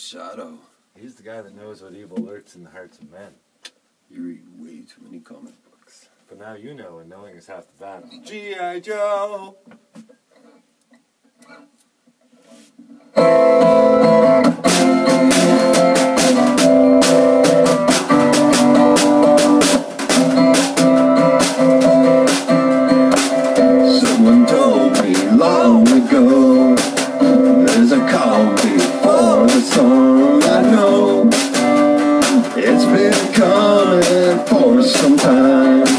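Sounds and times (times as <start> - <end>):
acoustic guitar strumming: 13.1 - 35.9
snare drum hits: 14.7 - 22.5, 23.1 - 24.2
short vocal sound: 23.7 - 31.5.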